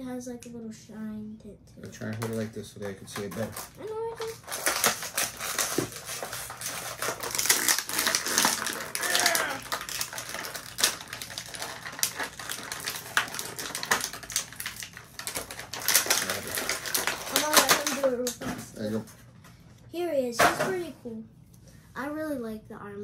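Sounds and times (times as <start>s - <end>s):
plastic packaging crinkling: 2.1s - 19.1s.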